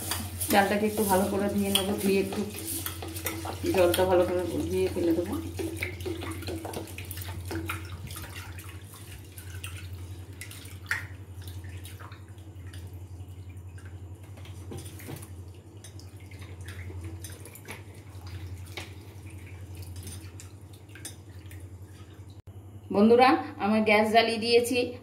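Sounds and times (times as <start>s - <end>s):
rice swished in bowl of water: 0.0s - 12.0s
water splashing and dripping: 0.0s - 22.4s
low steady hum: 0.0s - 25.0s.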